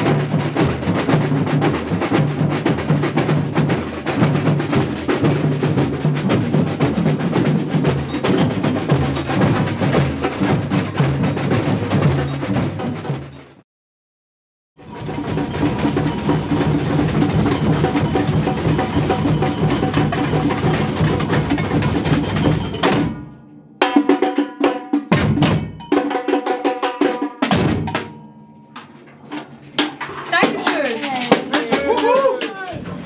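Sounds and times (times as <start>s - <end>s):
samba percussion ensemble: 0.0s - 13.6s, 14.8s - 33.0s.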